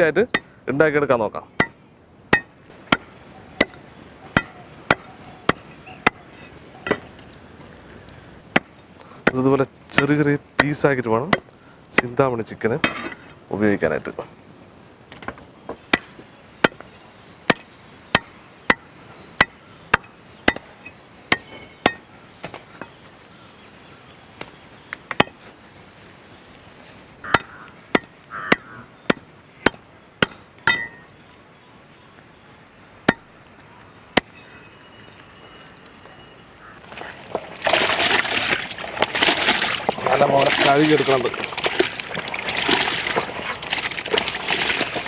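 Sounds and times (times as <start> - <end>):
water splashing: 36.8 - 45.0.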